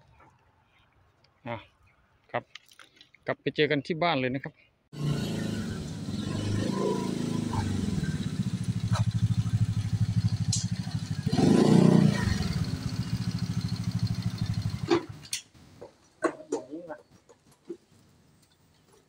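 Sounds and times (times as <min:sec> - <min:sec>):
scooter engine idling: 0:05.0 - 0:15.3.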